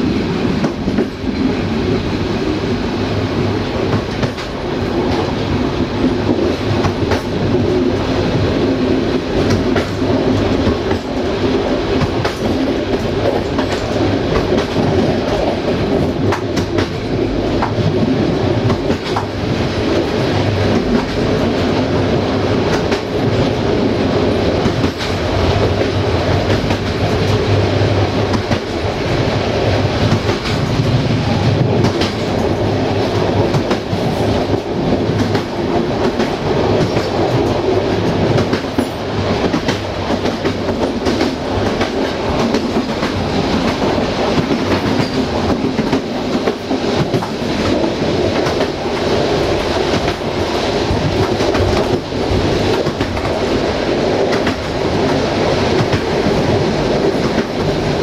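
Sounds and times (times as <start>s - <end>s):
clickety-clack of rails: 0.0s - 58.0s
train wheels rumbling on rails: 0.0s - 58.0s.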